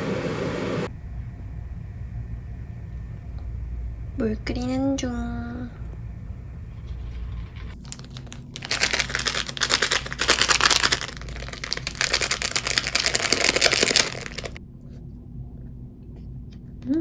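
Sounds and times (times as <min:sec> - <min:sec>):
plastic sachet crinkling: 0:07.8 - 0:14.6.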